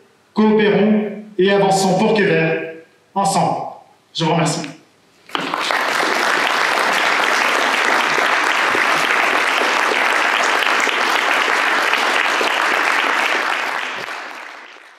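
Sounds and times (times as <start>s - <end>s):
crowd applauding: 5.3s - 14.9s.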